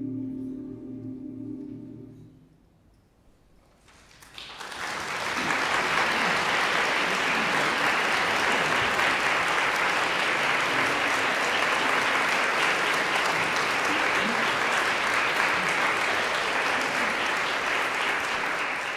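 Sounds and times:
audience applause: 3.9 - 18.9.

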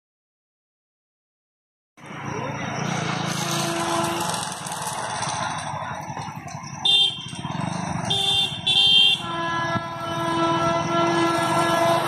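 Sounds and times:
train horn blasts: 3.3 - 4.6, 8.1 - 12.0.

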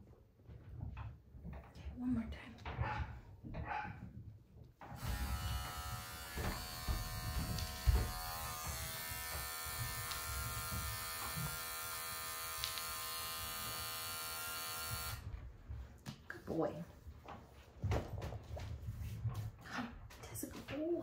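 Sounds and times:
electric hair clippers buzzing: 4.9 - 15.2.

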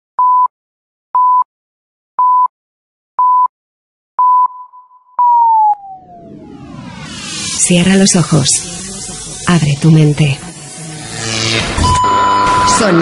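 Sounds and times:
high electronic beep pips: 4.2 - 9.9, 11.8 - 13.0.

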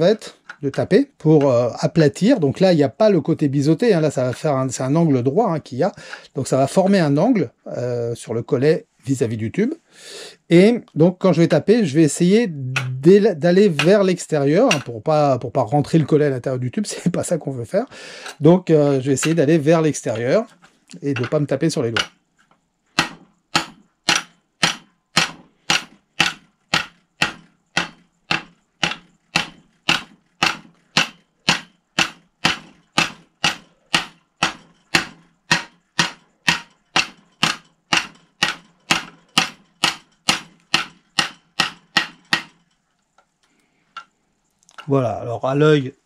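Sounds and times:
hammer striking copper tube: 12.6 - 15.0, 18.2 - 22.2, 23.0 - 42.8.

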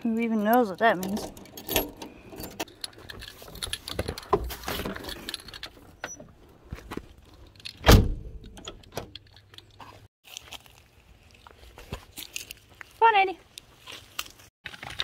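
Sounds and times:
car door thump: 7.9 - 8.3.

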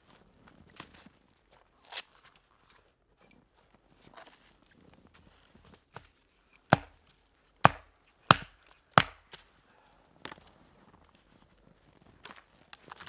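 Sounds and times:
hatchet chopping wood: 6.7 - 9.4.

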